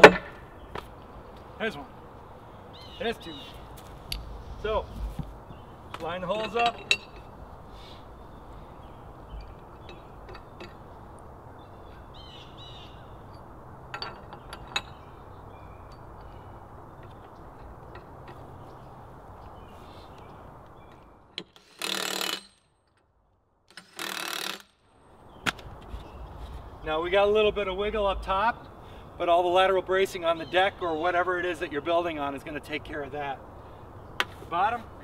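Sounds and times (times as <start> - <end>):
bird chirps: 2.5 - 3.8, 7.7 - 13.4, 14.3 - 21.2
cordless driver bursts: 21.6 - 22.5, 23.7 - 24.7.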